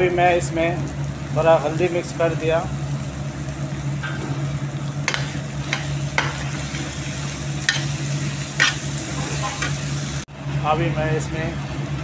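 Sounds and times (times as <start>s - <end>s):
potatoes sizzling in a frying pan: 0.0s - 10.3s.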